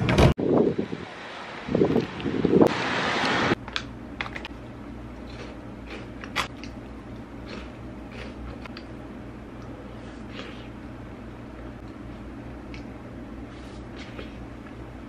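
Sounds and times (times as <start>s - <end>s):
low electrical hum: 0.0s - 15.0s
crunchy snack being chewed: 5.2s - 6.8s, 7.4s - 8.9s.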